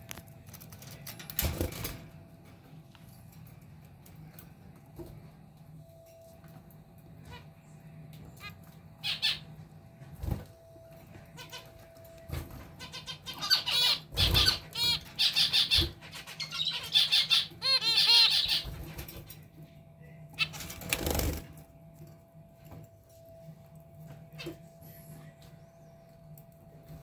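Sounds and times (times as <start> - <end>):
finches calling: 12.8 - 18.6.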